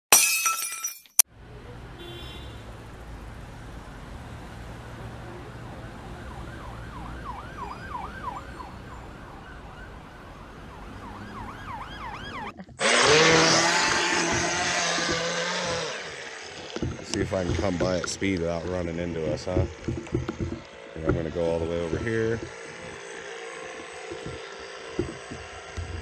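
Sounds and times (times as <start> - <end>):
model boat motor whine: 1.5 - 26.0
siren-like wail: 5.3 - 16.2.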